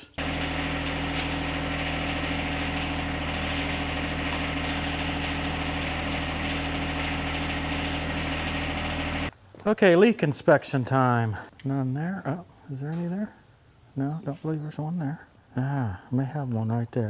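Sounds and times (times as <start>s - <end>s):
diesel tractor engine running: 0.2s - 9.3s.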